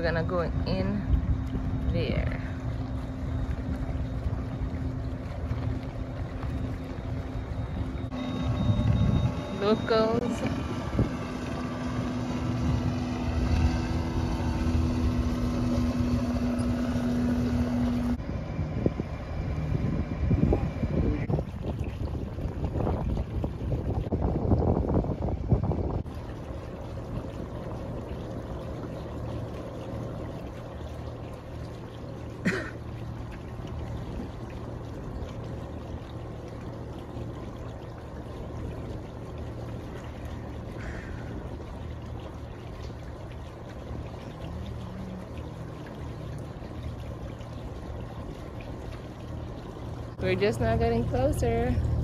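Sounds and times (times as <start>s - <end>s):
wind buffeting microphone: 0.0s - 28.6s
boat engine humming: 0.0s - 52.0s
water noise: 0.0s - 52.0s.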